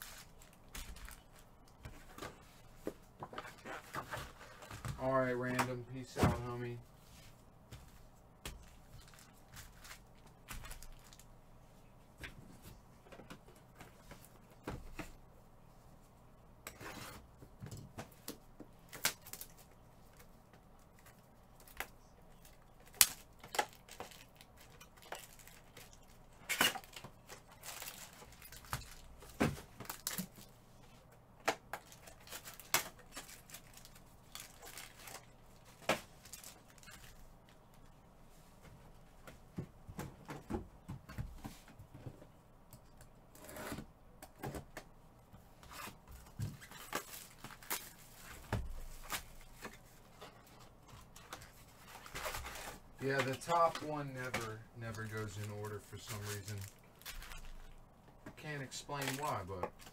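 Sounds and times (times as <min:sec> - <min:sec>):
foil wrappers crinkling and tearing: 0:00.0 - 0:01.5, 0:09.0 - 0:11.3, 0:18.8 - 0:20.3, 0:21.0 - 0:30.5, 0:31.8 - 0:37.2, 0:45.8 - 0:49.8, 0:51.2 - 0:57.8, 0:58.6 - 0:59.9.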